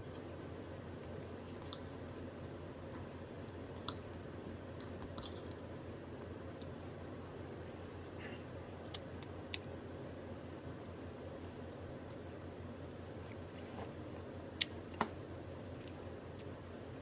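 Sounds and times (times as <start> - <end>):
low room hum: 0.0 - 17.0
bread squishing: 0.9 - 9.7.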